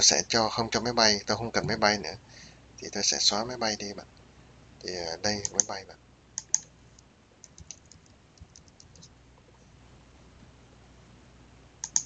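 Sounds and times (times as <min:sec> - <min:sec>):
keyboard keystrokes: 0:07.4 - 0:09.1.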